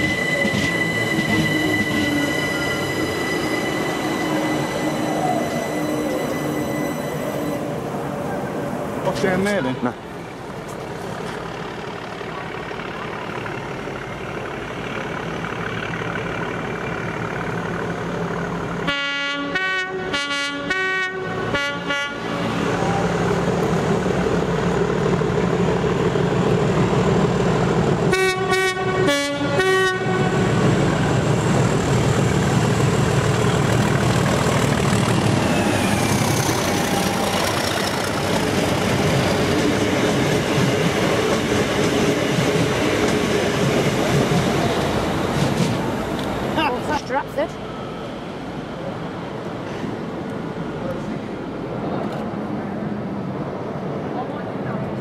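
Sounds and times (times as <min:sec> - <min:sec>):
two-tone locomotive horn blasts: 0:00.0 - 0:07.9, 0:18.8 - 0:22.7, 0:28.1 - 0:30.6
passing train rumble: 0:00.0 - 0:55.0.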